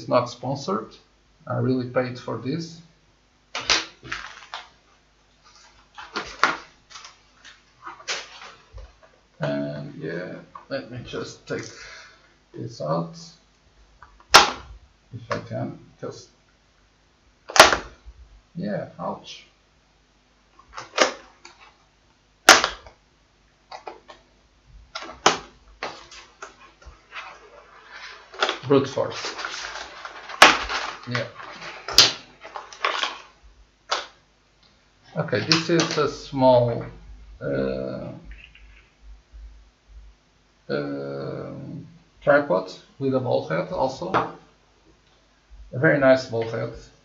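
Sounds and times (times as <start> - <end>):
plastic packaging rustling: 3.5 - 9.2, 24.9 - 34.2.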